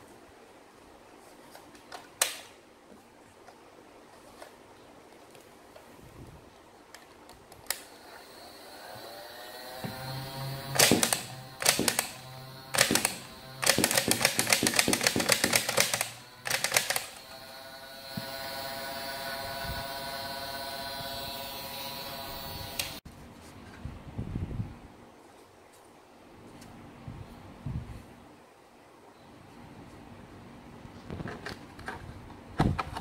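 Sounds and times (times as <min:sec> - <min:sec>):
blaster motor whining: 0:07.9 - 0:23.0.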